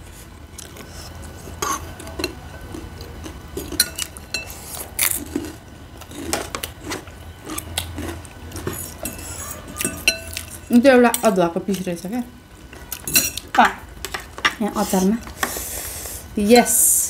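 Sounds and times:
chewing: 0:00.6 - 0:10.6
spoons clinking against bowls: 0:03.6 - 0:04.6, 0:08.6 - 0:11.9, 0:12.8 - 0:14.6.

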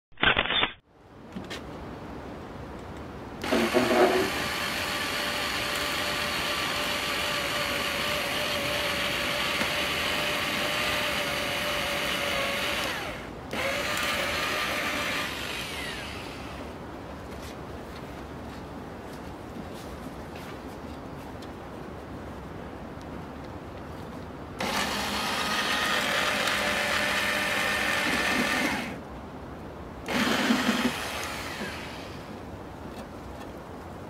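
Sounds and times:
electric drill drilling into wood: 0:03.4 - 0:16.6, 0:24.6 - 0:29.0, 0:30.1 - 0:32.2.

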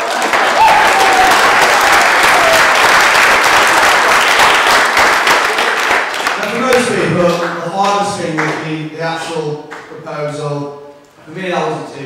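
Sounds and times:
crowd applauding: 0:00.0 - 0:08.6.

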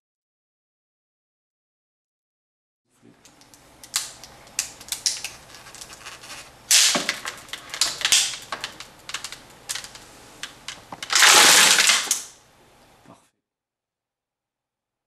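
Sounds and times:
plastic bottle and bag crackling: 0:03.2 - 0:12.4.

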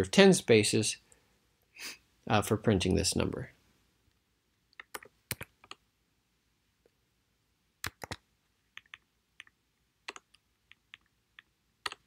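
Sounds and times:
computer keyboard key clicks: 0:07.8 - 0:08.2.

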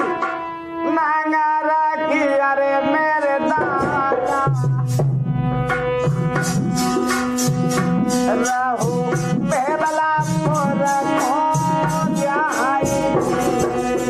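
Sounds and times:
bending melody line: 0:00.0 - 0:14.0
drums steady beat: 0:03.5 - 0:14.0.

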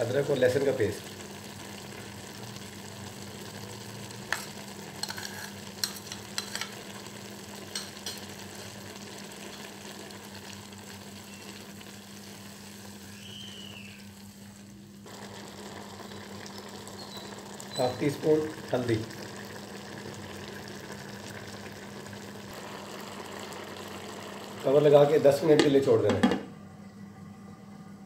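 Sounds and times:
food simmering bubbling hiss: 0:00.0 - 0:25.8
low hum: 0:26.4 - 0:28.0.

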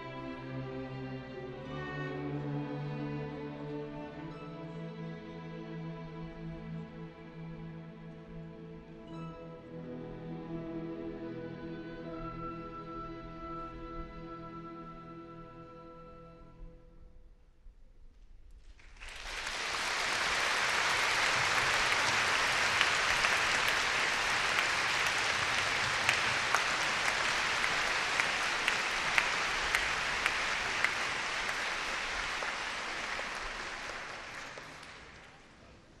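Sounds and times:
audience applauding: 0:18.8 - 0:35.6.

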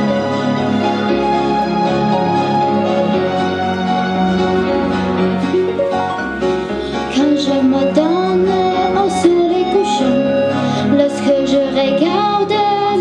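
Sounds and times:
instrumental accompaniment: 0:00.0 - 0:13.0
girl singing: 0:07.1 - 0:13.0.

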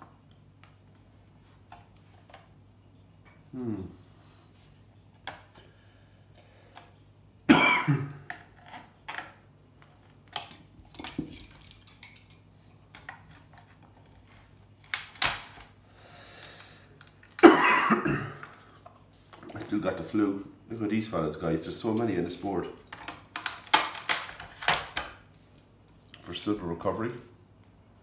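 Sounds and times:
metal tools clinking: 0:10.4 - 0:12.5.

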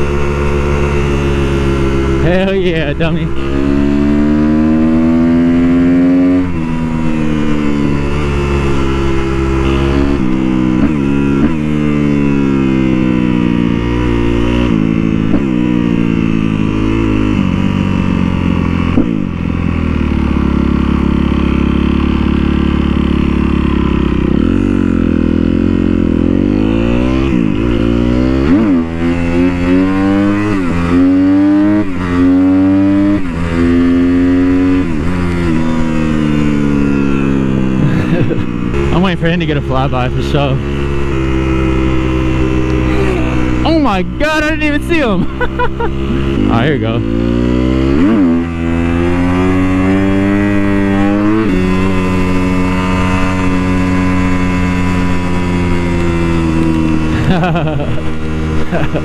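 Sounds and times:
motorcycle engine accelerating: 0:00.0 - 0:59.0.

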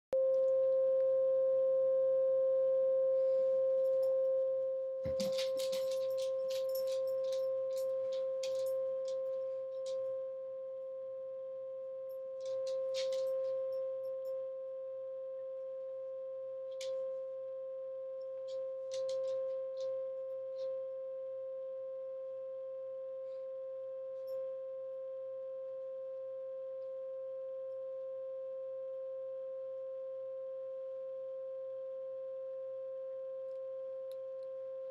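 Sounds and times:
steady pure tone: 0:00.1 - 0:34.9
fainter higher tone: 0:00.2 - 0:18.5
crisp clicks and rustles: 0:05.1 - 0:09.2, 0:12.5 - 0:13.4.

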